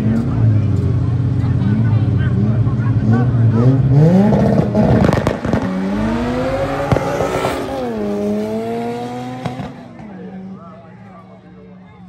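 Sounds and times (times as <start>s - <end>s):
cars accelerating hard: 0.0s - 10.8s
exhaust pops: 4.4s - 6.1s, 9.4s - 10.2s.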